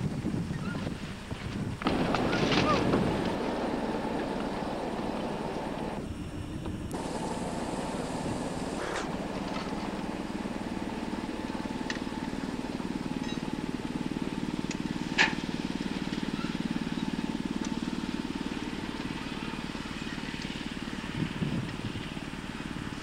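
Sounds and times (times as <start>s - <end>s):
small engine running: 1.8s - 23.0s
high hiss: 6.9s - 12.3s.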